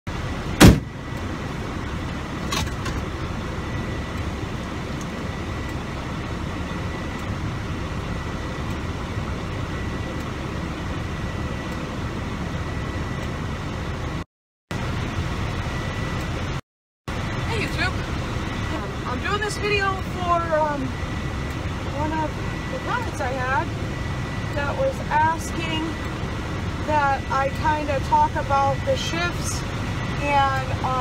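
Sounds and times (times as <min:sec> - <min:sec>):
diesel engine idling: 0:00.1 - 0:31.0
sharp thump: 0:00.6 - 0:00.9
faint high whine: 0:14.8 - 0:31.0.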